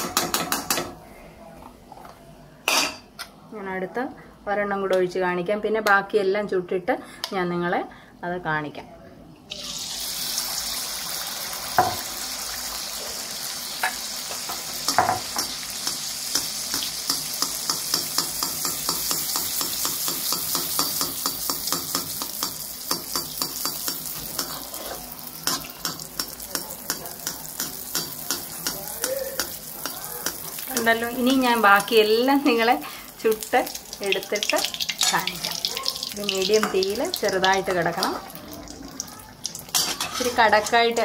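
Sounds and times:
batter sizzling in hot ghee: 9.5 - 41.0.

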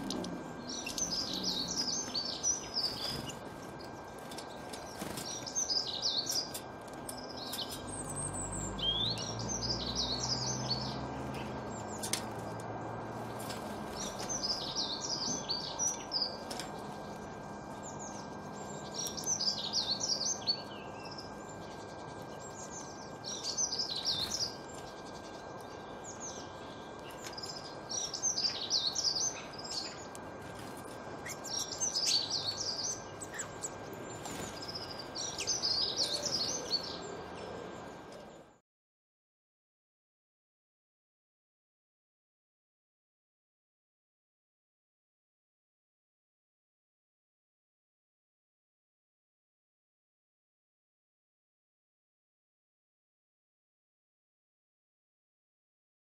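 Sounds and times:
songbird singing: 0.0 - 38.6.

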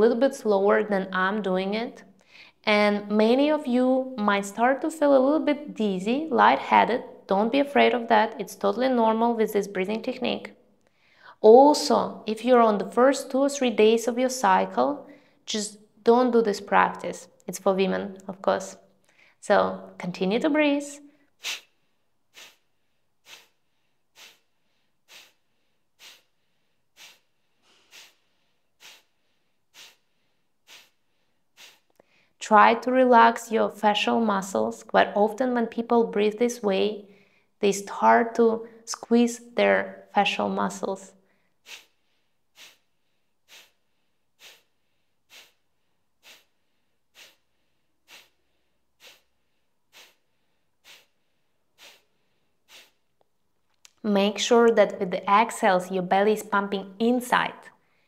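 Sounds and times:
forceful exhales through nose: 21.4 - 32.4, 41.3 - 53.0.

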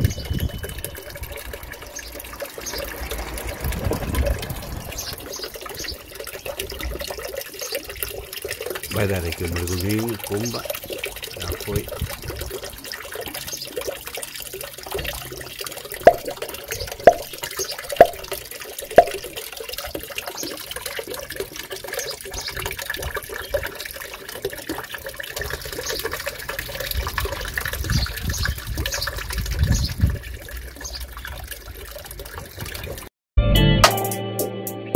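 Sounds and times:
fountain water splashing and trickling: 0.0 - 33.1
sharp knocks: 16.0 - 16.4, 17.0 - 17.4, 18.0 - 18.2, 19.0 - 19.2.

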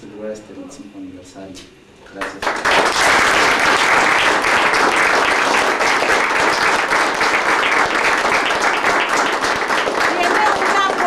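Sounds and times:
people applauding: 2.2 - 11.0.

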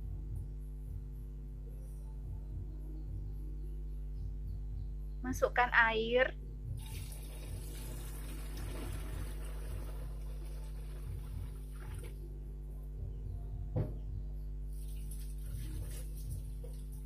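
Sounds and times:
water pouring into a tub: 6.8 - 12.2, 14.8 - 16.8
short knock: 13.7 - 14.2.

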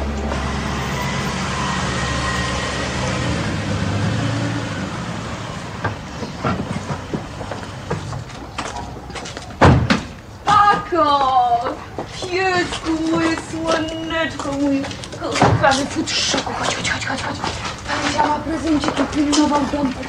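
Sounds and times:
car engine rumbling: 0.0 - 10.5.

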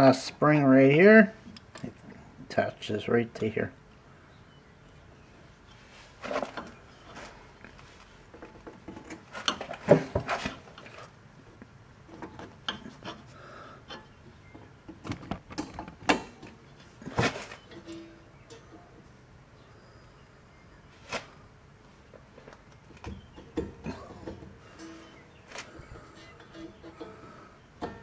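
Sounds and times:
metal hardware clicks and scrapes: 8.3 - 11.1, 12.1 - 19.1, 23.0 - 28.0.

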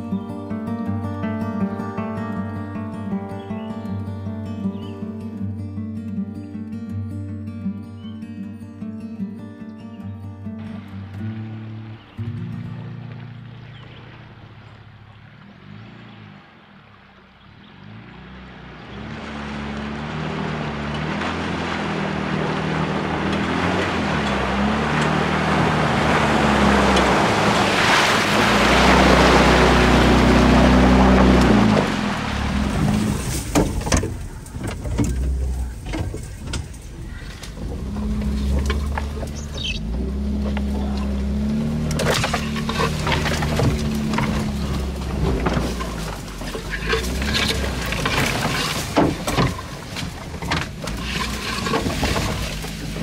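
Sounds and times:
branches scraping vehicle body: 17.9 - 53.0
branches snapping: 19.9 - 53.0.

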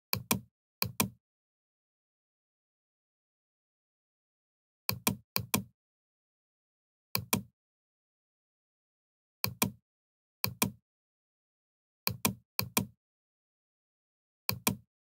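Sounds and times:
computer mouse clicking: 0.1 - 1.2, 4.9 - 5.7, 7.2 - 7.5, 9.4 - 9.8, 10.4 - 10.8, 12.1 - 12.9, 14.5 - 14.8.

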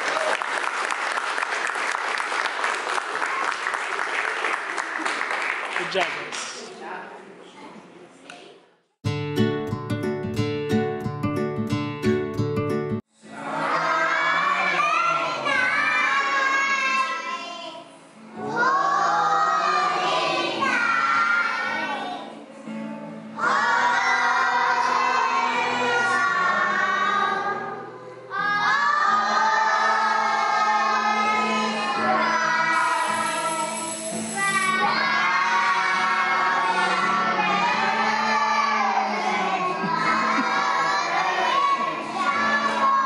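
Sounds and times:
children singing in chorus: 13.3 - 22.4, 23.3 - 43.0.

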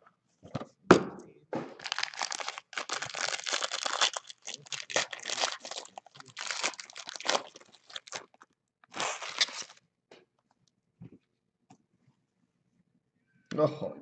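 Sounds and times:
plastic wrapping crackling: 1.8 - 9.8.

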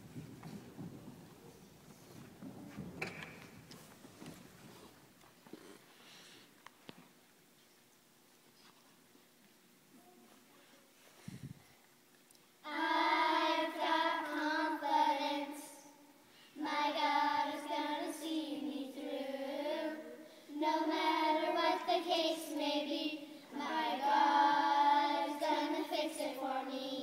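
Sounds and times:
young children singing in unison: 12.6 - 27.0.

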